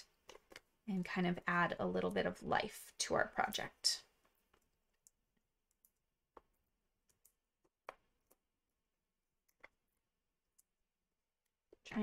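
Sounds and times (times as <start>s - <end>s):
faint clicks and taps: 0.0s - 1.1s, 4.1s - 8.5s, 9.4s - 10.8s.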